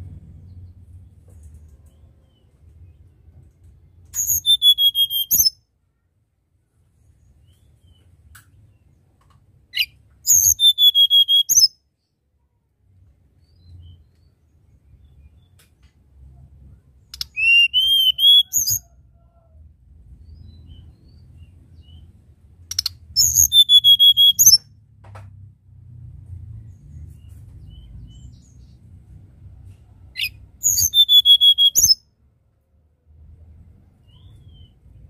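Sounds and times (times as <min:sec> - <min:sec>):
bird whistling song: 0:04.1 - 0:05.6, 0:09.8 - 0:11.8, 0:17.1 - 0:19.0, 0:22.7 - 0:24.7, 0:30.2 - 0:32.0, 0:34.0 - 0:35.0.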